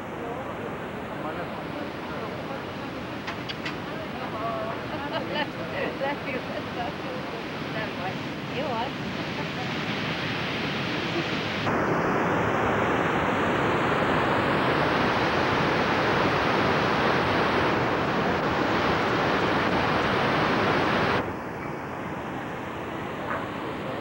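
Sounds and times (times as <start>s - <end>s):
waterfall rushing: 0.0s - 22.5s.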